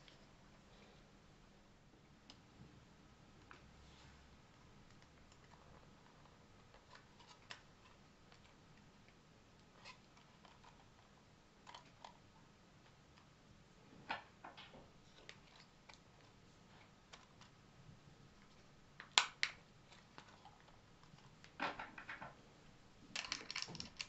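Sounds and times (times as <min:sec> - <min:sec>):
plastic clock parts clicking: 0:23.2 - 0:24.0.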